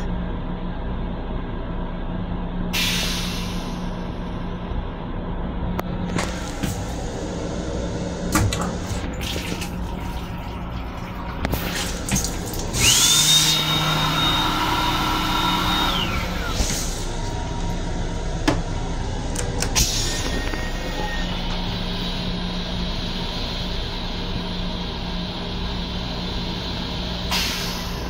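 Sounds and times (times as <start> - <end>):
train rumble: 0.0 - 13.1, 15.1 - 28.0
toilet flushing with whistling tone: 8.3 - 16.7, 19.8 - 22.3.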